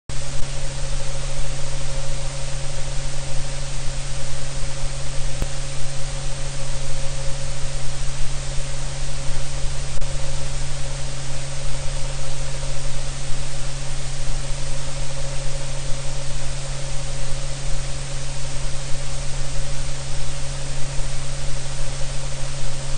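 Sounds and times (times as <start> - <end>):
loud static hiss: 0.1 - 22.9
low hum: 0.1 - 22.9.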